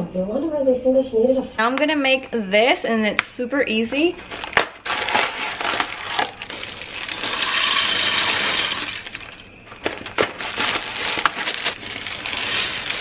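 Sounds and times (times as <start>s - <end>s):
dry pasta rattling out of a box: 4.3s - 13.0s.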